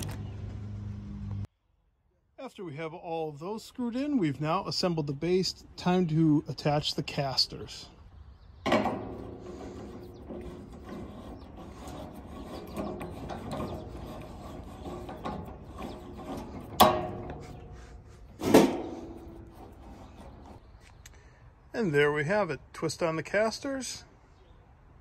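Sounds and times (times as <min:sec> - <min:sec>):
metal rattling and scraping: 0:08.6 - 0:20.7
sharp ringing metal knocks: 0:16.6 - 0:17.6.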